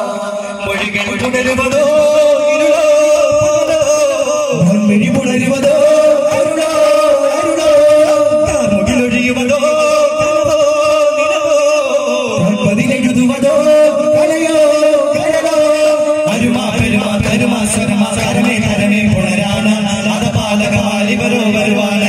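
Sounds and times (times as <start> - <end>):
frame drums beating: 12.4 - 22.0.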